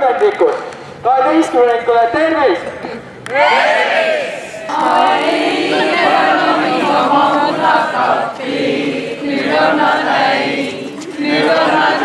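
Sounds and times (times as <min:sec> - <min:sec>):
group singing in chorus: 0:03.5 - 0:12.0.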